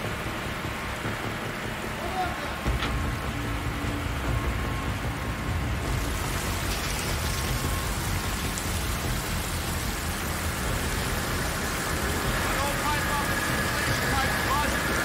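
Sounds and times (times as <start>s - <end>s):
low engine room rumble: 0.0s - 15.0s
water rushing from burst pipe: 5.8s - 15.0s.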